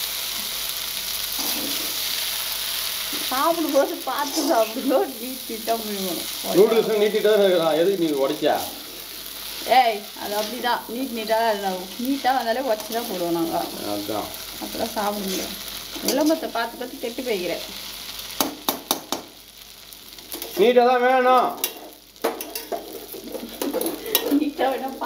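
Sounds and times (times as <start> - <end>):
stir-frying sizzle: 0.0 - 25.0
ladle scraping metal pan: 1.4 - 2.0.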